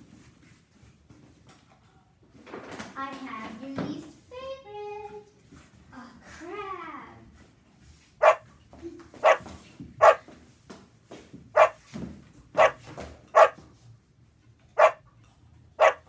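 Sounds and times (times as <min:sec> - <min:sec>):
dog barking: 0:08.2 - 0:08.4, 0:09.2 - 0:10.2, 0:11.6 - 0:11.8, 0:12.6 - 0:13.6, 0:14.8 - 0:15.0, 0:15.8 - 0:16.0.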